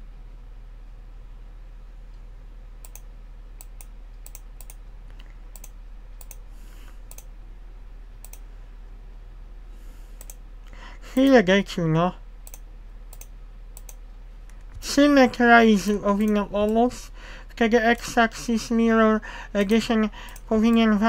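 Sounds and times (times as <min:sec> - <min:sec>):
low electrical hum: 0:00.0 - 0:21.0
computer mouse clicks: 0:02.8 - 0:07.3, 0:08.2 - 0:08.4, 0:10.2 - 0:10.4, 0:12.4 - 0:14.7.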